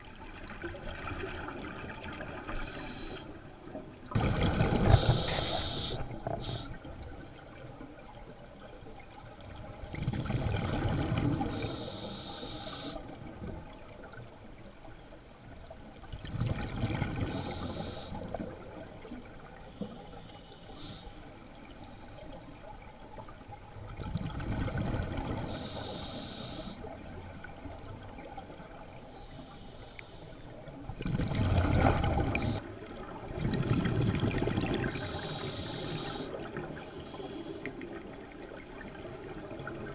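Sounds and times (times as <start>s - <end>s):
scuba regulator breathing underwater: 2.5s - 3.3s, 4.7s - 6.8s, 11.4s - 13.1s, 17.2s - 18.4s, 19.7s - 21.2s, 25.4s - 26.9s, 32.2s - 32.6s, 34.8s - 37.7s.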